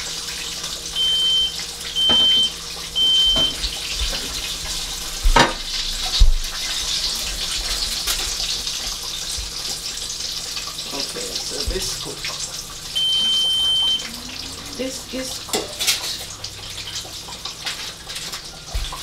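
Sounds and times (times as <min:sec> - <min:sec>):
chicken deep-frying in oil: 0:00.0 - 0:19.0
short high electronic beeps: 0:13.0 - 0:14.2.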